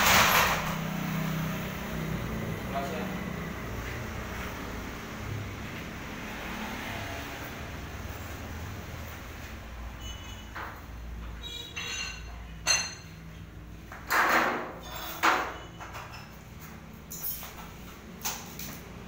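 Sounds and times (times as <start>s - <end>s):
metal gate clanking and rattling: 0.0s - 0.9s, 14.0s - 16.4s.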